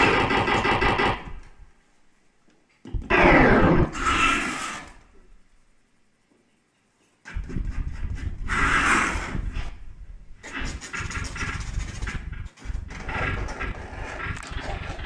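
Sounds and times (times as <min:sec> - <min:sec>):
grainy electronic noise: 0:02.9 - 0:04.8.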